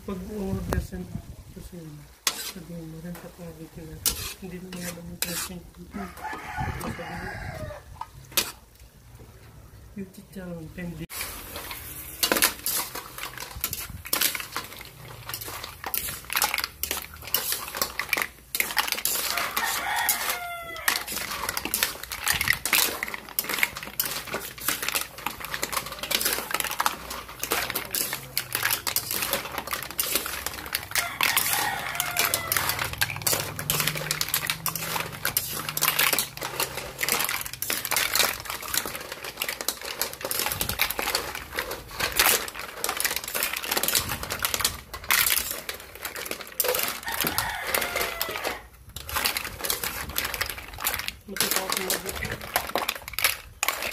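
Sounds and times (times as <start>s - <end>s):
mussel shells clattering in pan: 0.0s - 9.1s, 11.0s - 53.9s
rooster crowing: 6.0s - 8.0s, 19.2s - 21.2s, 30.9s - 33.0s, 47.0s - 48.7s.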